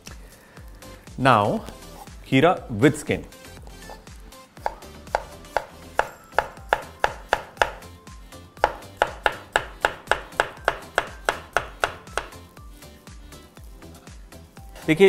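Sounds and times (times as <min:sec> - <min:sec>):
knife slicing on wooden board: 0:04.6 - 0:07.8.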